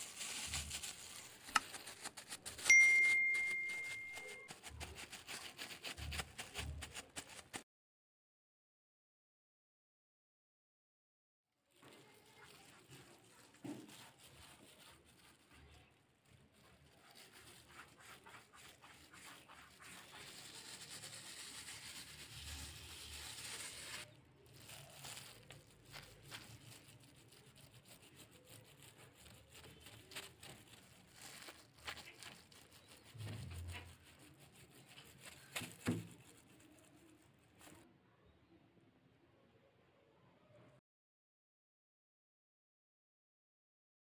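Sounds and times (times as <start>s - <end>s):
flour sprinkled on dough: 0.0s - 7.6s, 11.6s - 37.9s.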